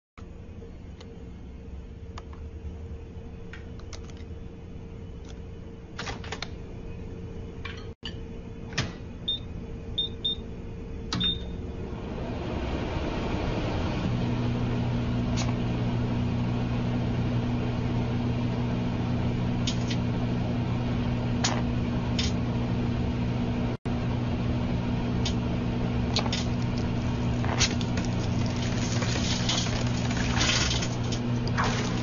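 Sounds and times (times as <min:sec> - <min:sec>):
microwave oven humming: 0:00.2 - 0:32.0
crackles and pops of arcing: 0:26.1 - 0:32.0.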